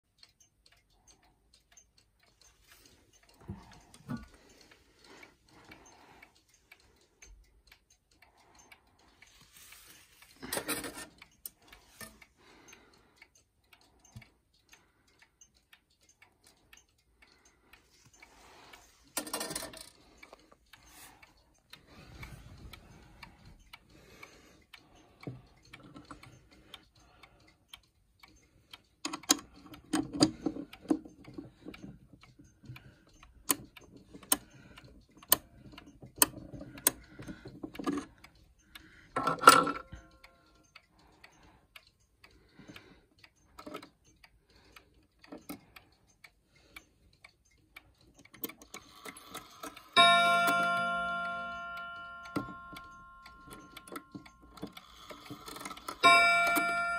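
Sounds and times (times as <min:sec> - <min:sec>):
wall clock ticking: 0:00.0 - 0:56.9.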